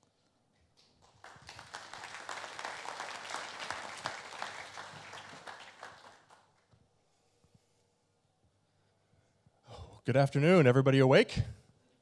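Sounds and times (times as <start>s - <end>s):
audience applauding: 1.0s - 6.6s.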